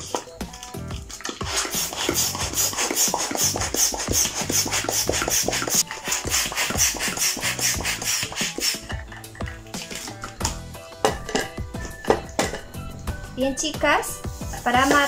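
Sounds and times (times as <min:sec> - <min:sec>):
hand pump rasping air strokes: 0:00.8 - 0:10.4.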